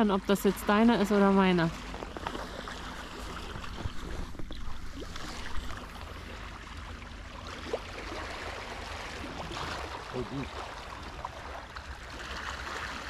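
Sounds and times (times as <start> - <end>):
wind rumbling on microphone: 1.8 - 6.2.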